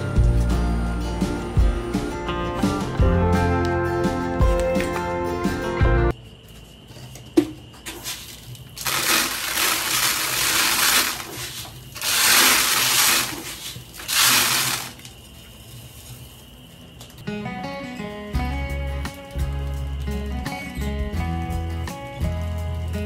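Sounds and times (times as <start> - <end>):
grain pouring into plastic bucket: 8.0 - 15.1.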